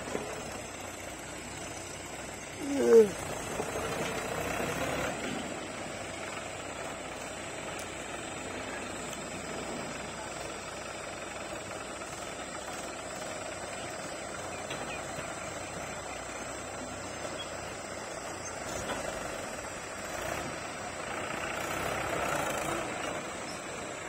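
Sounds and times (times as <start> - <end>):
tractor diesel engine running: 0.0 - 24.0.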